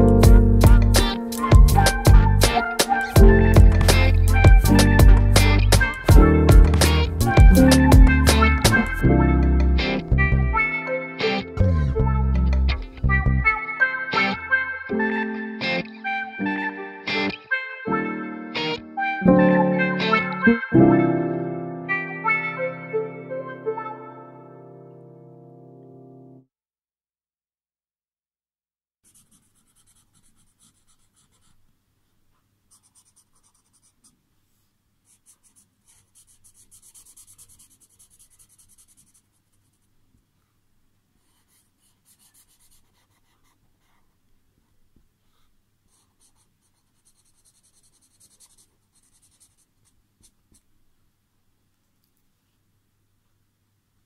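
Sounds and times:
marker scratching on paper: 0:29.0 - 0:31.6, 0:32.7 - 0:34.2, 0:35.1 - 0:39.9, 0:41.2 - 0:44.1, 0:45.3 - 0:50.6.

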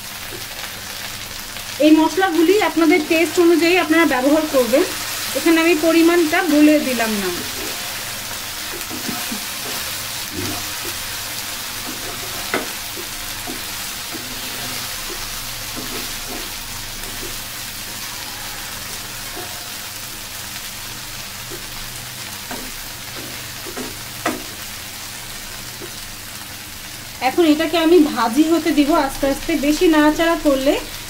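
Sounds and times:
okra sizzling in oil: 0:00.0 - 0:31.0
wooden spatula stirring: 0:08.6 - 0:20.3.

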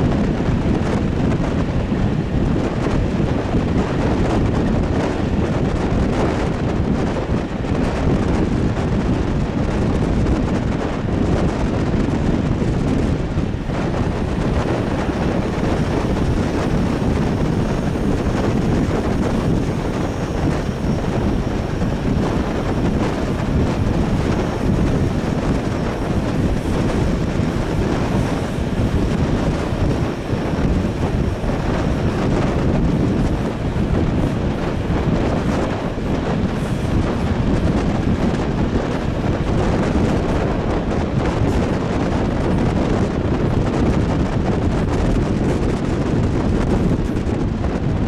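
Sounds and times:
train running on track: 0:00.0 - 0:48.0
wind buffeting microphone: 0:00.0 - 0:48.0.

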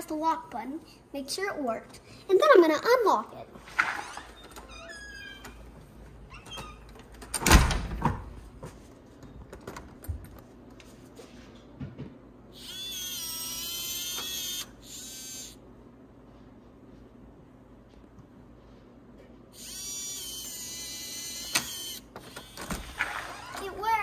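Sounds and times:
door bumping shut: 0:06.4 - 0:08.4
smart lock motor whirring: 0:12.6 - 0:15.6, 0:19.6 - 0:23.7.

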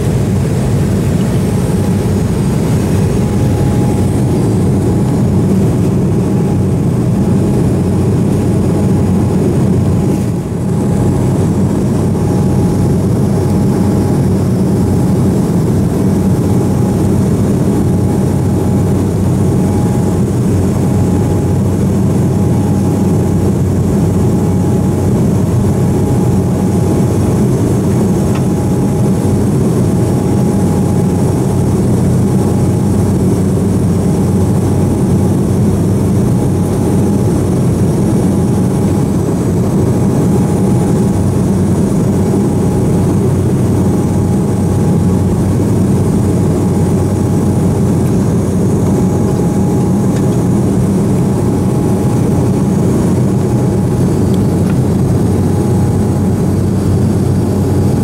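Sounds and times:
airliner cabin engine drone: 0:00.0 - 0:58.0
faint high hum: 0:00.0 - 0:58.0.

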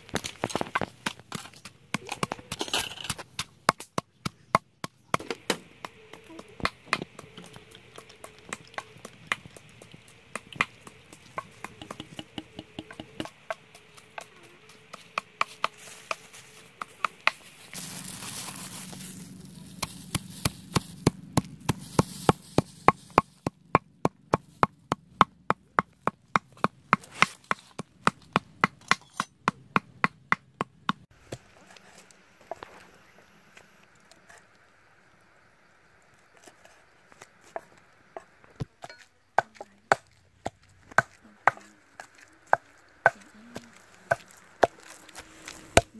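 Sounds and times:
pestle pounding in stone mortar: 0:00.2 - 0:17.4, 0:19.8 - 0:31.1, 0:38.8 - 0:44.9.

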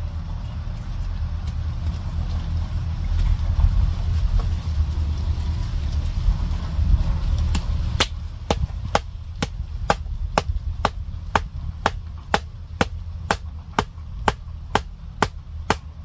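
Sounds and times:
wooden club striking stake: 0:08.0 - 0:15.9.

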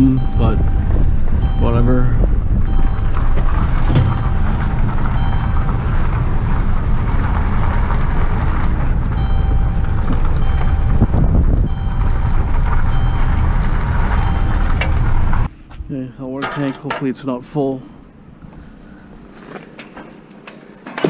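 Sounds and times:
wind buffeting microphone: 0:00.0 - 0:15.5
vehicle low rumble: 0:00.0 - 0:21.0.

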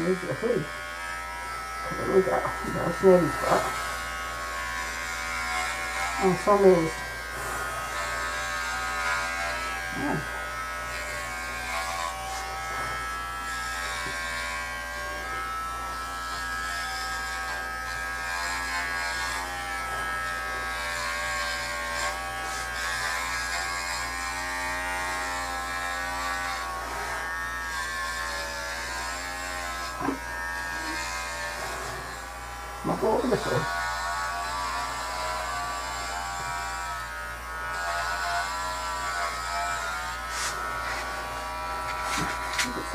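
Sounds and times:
electric clippers humming: 0:00.0 - 0:42.9.

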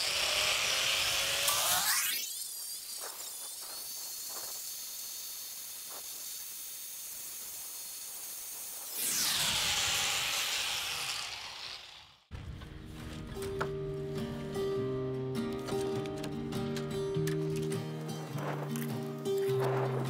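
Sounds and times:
angle grinder sanding wood: 0:00.0 - 0:12.2.

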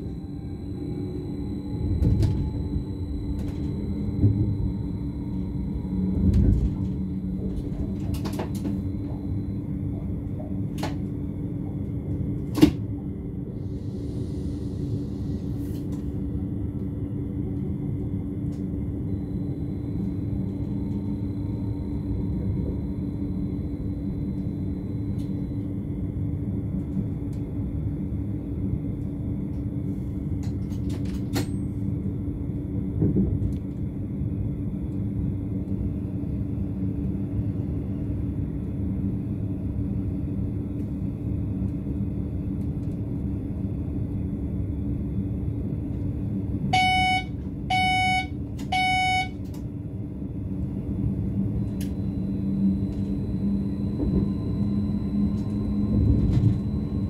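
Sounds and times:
train running rumble: 0:00.0 - 0:57.0
short electronic beeps: 0:46.8 - 0:49.4.

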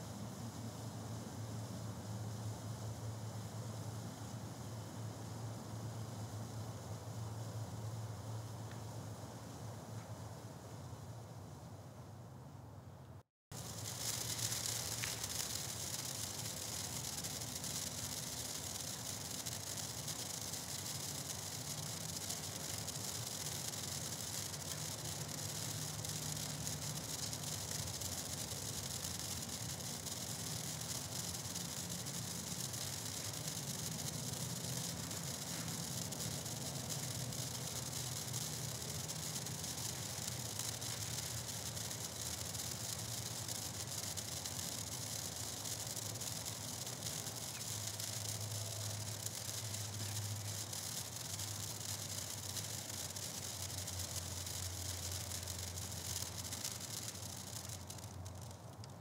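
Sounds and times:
low steady hum: 0:00.0 - 0:59.0
sparklers fizzing: 0:13.5 - 0:59.0.

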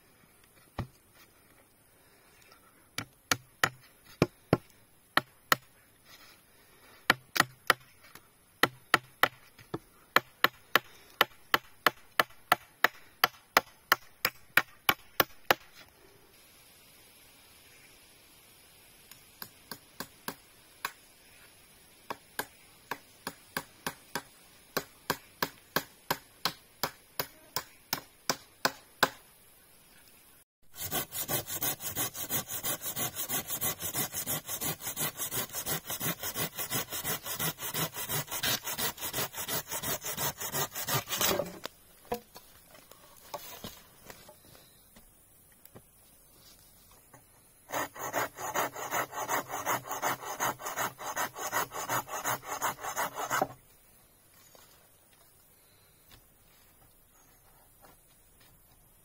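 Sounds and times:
wood being chopped: 0:03.0 - 0:05.7, 0:07.1 - 0:07.9, 0:08.6 - 0:15.7, 0:22.1 - 0:29.2
hand saw cutting wood: 0:30.7 - 0:41.7, 0:47.7 - 0:53.6.

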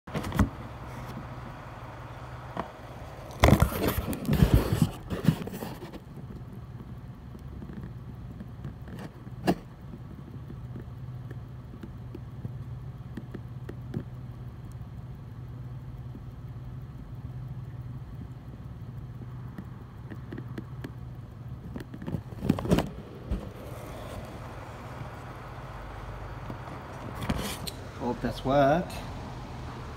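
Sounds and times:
low machine hum: 0:00.2 - 0:29.9
faint ticks: 0:06.1 - 0:22.1.

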